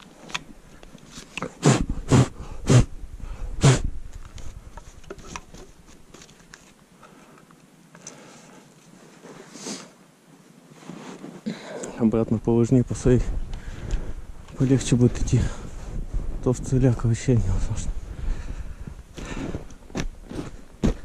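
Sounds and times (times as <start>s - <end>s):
snow rustling and creaking: 8.9s - 21.0s.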